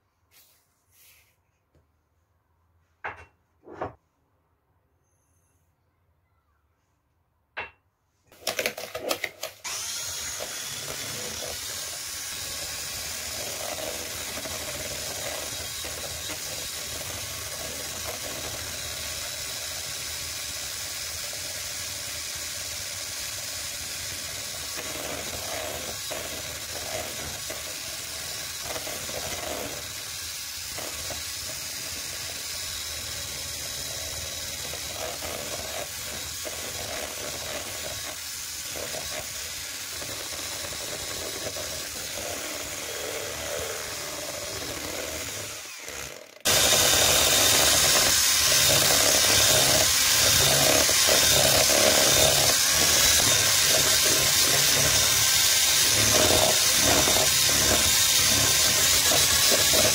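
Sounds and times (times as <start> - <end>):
electric blender whisking: 8.3 - 59.9.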